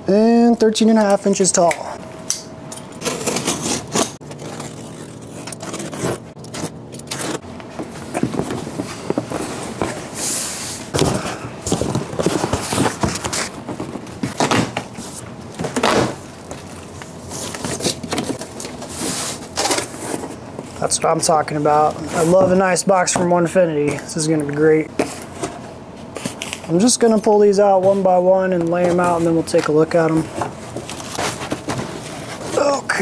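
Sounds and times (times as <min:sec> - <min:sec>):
packing tape being slit: 0:03.0 - 0:07.4
cardboard flaps scraping and rustling: 0:03.0 - 0:20.4, 0:27.7 - 0:33.0.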